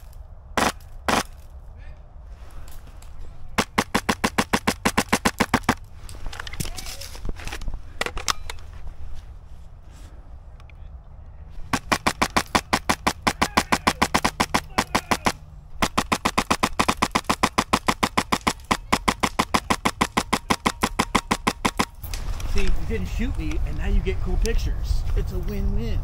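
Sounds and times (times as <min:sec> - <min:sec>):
airsoft gun firing full auto: 0:00.6 - 0:01.4, 0:03.6 - 0:05.8, 0:11.7 - 0:22.0.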